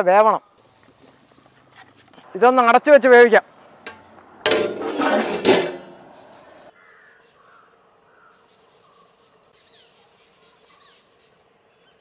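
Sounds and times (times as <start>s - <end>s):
metal pot lid clanking: 3.9s - 6.0s
bird calls and chirps: 6.0s - 12.0s.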